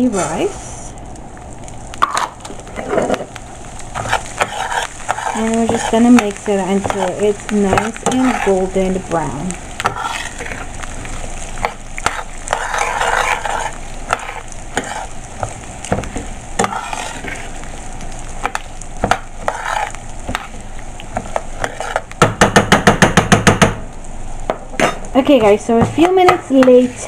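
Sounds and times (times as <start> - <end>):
oil sizzling: 0.0 - 27.0
spoon scraping rice in pan: 2.0 - 9.0, 9.8 - 10.8, 11.5 - 17.6, 18.4 - 22.1.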